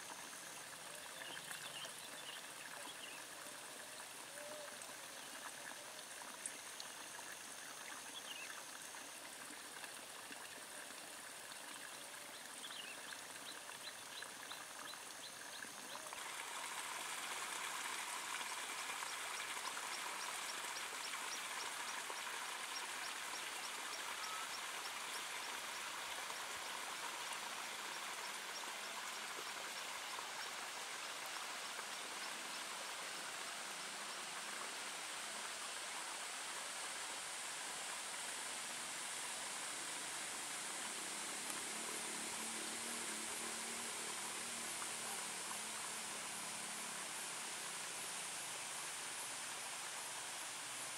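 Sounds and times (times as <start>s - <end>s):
water babbling and trickling: 0.0s - 50.9s.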